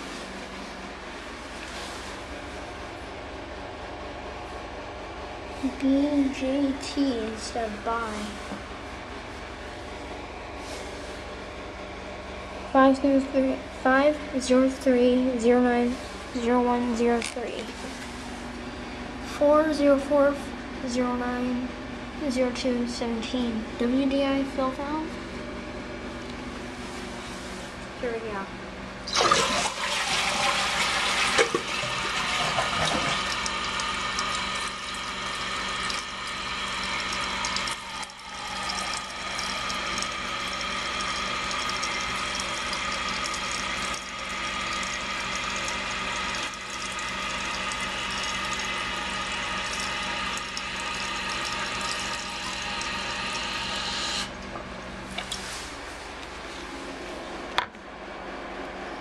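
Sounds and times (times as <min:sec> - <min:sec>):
toilet flushing: 0:29.1 - 0:54.4
fill valve hissing: 0:29.4 - 0:54.4.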